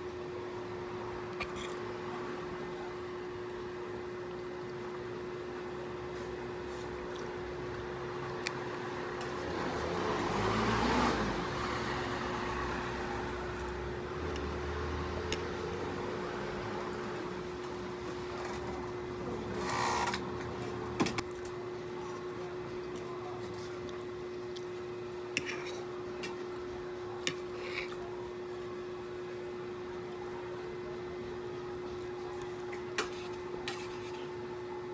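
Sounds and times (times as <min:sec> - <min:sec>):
vehicle passing by: 0:09.4 - 0:16.9
steady low hum: 0:11.2 - 0:34.9.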